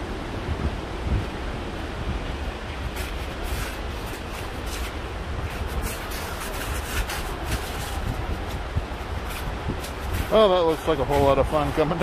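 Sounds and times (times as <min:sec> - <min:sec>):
steady low rumble: 0:00.0 - 0:12.0
footsteps on icy path: 0:02.9 - 0:11.8.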